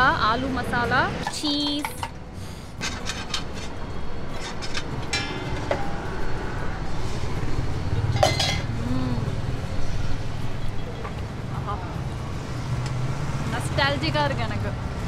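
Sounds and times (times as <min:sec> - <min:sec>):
vehicle engine rumble: 0:00.0 - 0:15.0
utensils and dishes clattering: 0:01.2 - 0:02.2, 0:02.8 - 0:06.1, 0:08.0 - 0:08.8.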